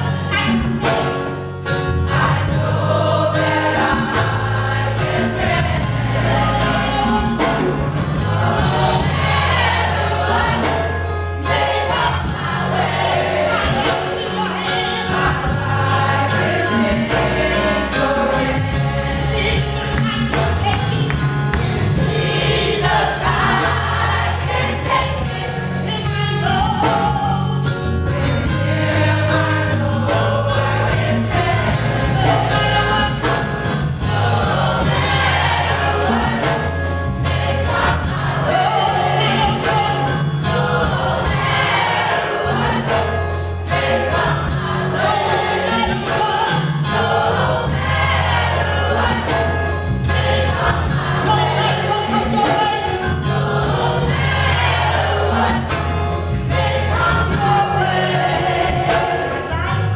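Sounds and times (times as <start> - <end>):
bass line: 0.0 - 59.9
drums: 0.0 - 59.9
gospel choir singing: 0.0 - 59.9
keyboard: 0.0 - 59.9.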